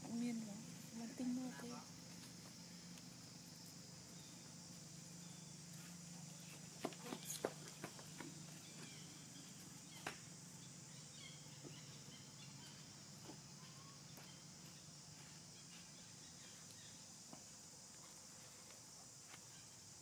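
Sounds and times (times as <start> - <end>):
faint hiss and low hum: 0.0 - 20.0.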